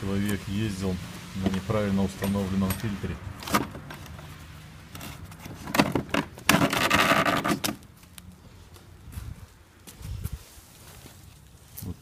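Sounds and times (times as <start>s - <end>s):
filter scraping and rustling: 3.4s - 7.8s.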